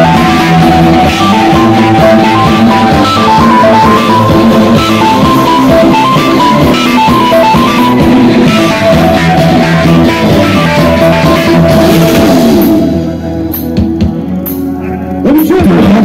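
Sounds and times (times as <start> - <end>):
live rock band playing: 0.0 - 16.0
drum hits: 11.2 - 13.0.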